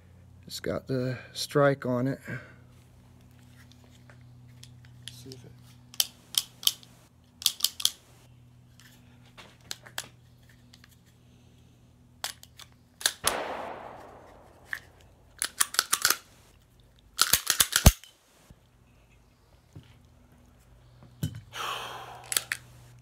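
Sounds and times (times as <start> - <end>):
pistol metallic clicks: 5.9 - 8.0, 12.2 - 18.2, 22.2 - 22.7.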